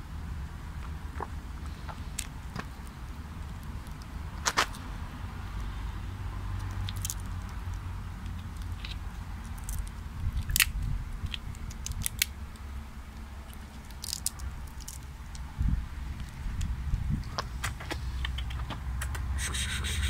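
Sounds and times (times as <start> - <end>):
steady low rumble: 0.0 - 20.0
walnut shell cracking: 1.9 - 4.9, 6.6 - 15.5.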